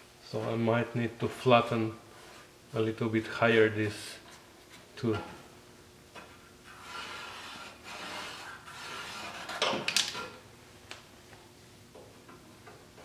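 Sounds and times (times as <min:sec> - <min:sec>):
scraping on steel panel: 0:06.6 - 0:10.4.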